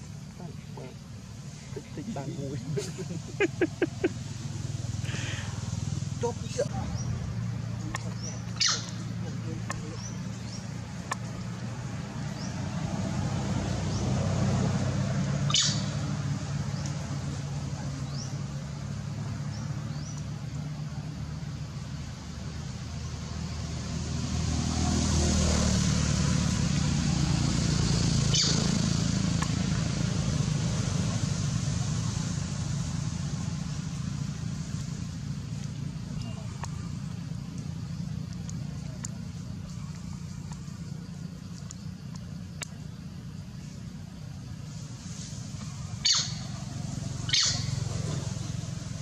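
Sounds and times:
motor engine humming: 26.0 - 49.0
hiss: 44.6 - 49.0.

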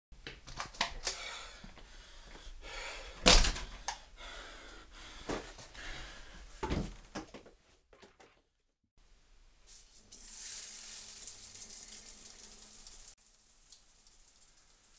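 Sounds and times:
knocks and thumps: 6.6 - 8.4.

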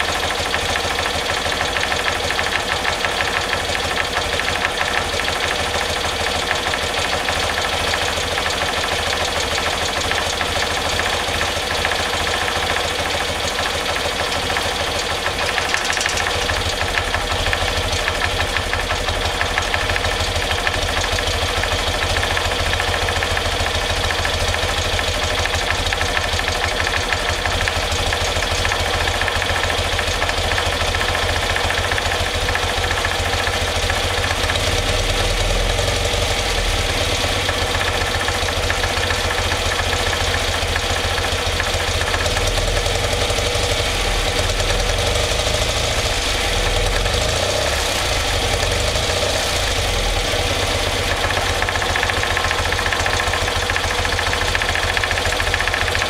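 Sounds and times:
motorcycle engine idling: 0.0 - 56.0.

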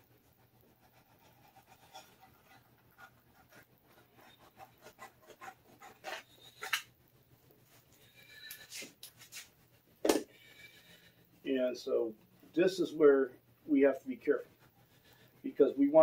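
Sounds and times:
knife blade scratching cloth: 0.9 - 2.6.

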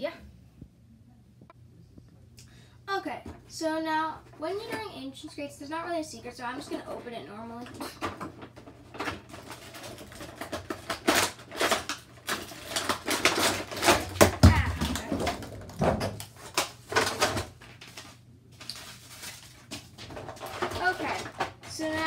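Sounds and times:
plastic and cardboard crackling: 6.3 - 22.0.

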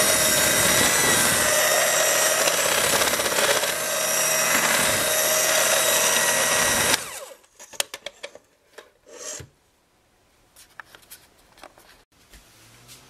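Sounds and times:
electric mixer motor running: 0.0 - 7.4.

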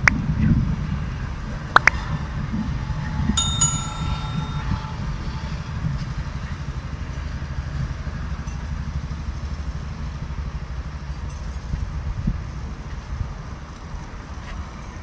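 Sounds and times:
metallic bell ding: 3.4 - 4.6.

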